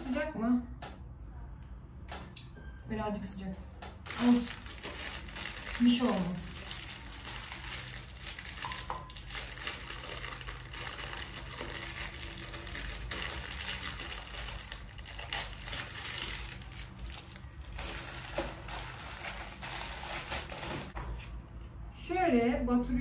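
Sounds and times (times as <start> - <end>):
plastic packaging crinkling: 4.0 - 21.2.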